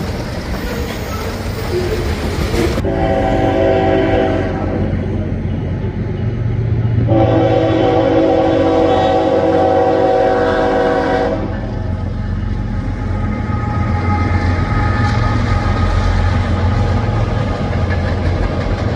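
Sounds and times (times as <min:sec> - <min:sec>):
locomotive engine rumble: 0:00.0 - 0:18.9
locomotive air horn blasts: 0:02.8 - 0:04.9, 0:07.0 - 0:11.8.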